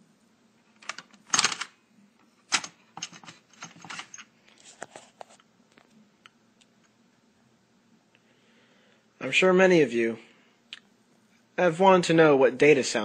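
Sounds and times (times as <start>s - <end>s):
hard objects clicking and clattering: 0.8s - 1.7s, 2.5s - 4.3s.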